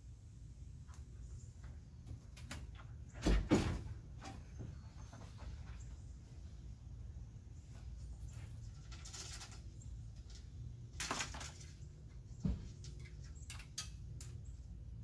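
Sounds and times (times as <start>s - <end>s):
scratchy scraping and rustling: 7.8s - 12.0s.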